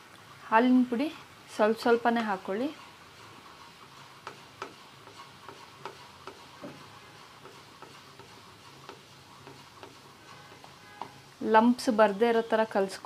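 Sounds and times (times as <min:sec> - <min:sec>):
wooden spatula tapping pan: 0:07.4 - 0:11.2.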